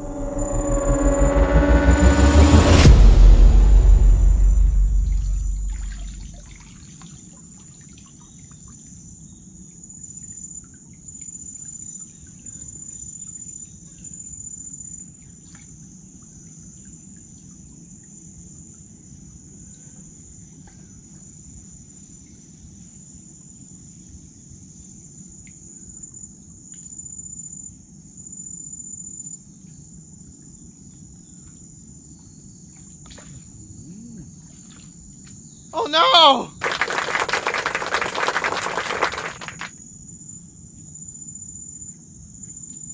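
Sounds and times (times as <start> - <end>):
insects trilling: 25.7 - 35.8, 36.6 - 42.9.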